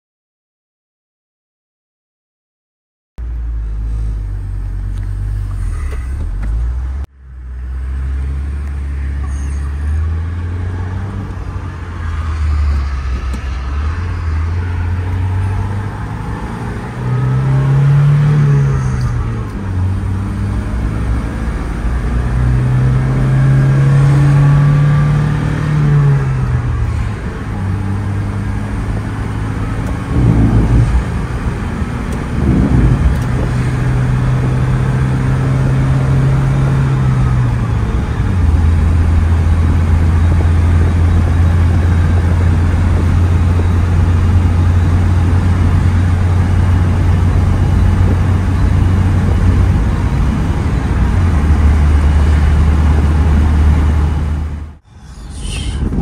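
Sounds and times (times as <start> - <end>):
road noise: 3.2 - 56.0
truck engine running: 26.5 - 35.4.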